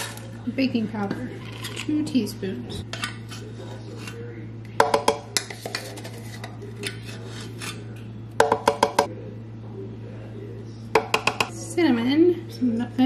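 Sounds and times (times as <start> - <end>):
spoon scraping: 1.2 - 2.1, 2.9 - 4.3, 5.3 - 8.0.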